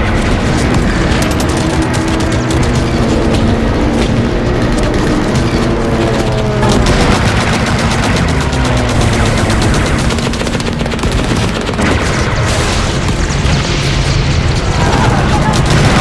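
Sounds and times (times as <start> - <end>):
machine-gun fire: 0.0 - 16.0.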